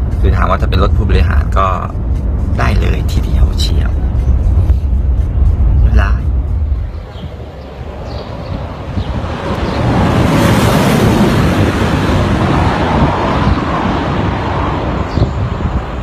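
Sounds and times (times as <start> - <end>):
wind rumble on microphone: 0.0 - 16.0
car passing at high speed: 4.0 - 16.0.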